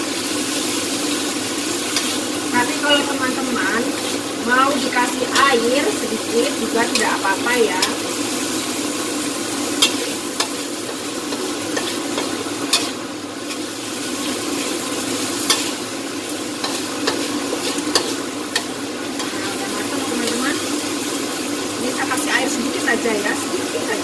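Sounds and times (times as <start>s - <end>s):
food sizzling in a wok: 0.0s - 24.0s
metal spatula scraping: 9.8s - 13.9s, 15.4s - 15.8s, 16.6s - 19.5s.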